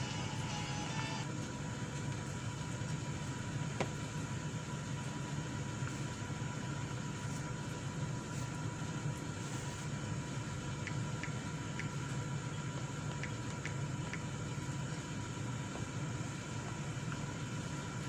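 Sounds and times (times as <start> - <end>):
music: 0.0 - 1.2
machine humming and whirring: 0.0 - 18.0.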